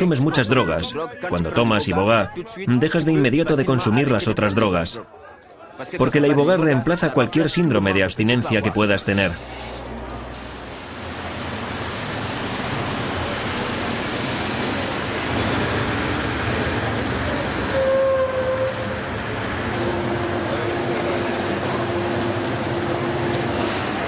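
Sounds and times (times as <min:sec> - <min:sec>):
metro train rumbling: 0:09.4 - 0:24.0.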